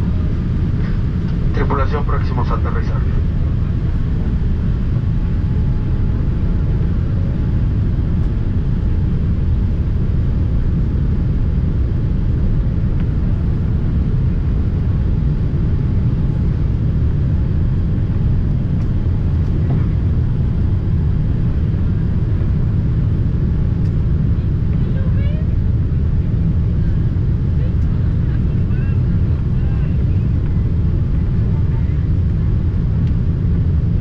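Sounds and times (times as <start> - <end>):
airliner engine rumble in cabin: 0.0 - 34.0.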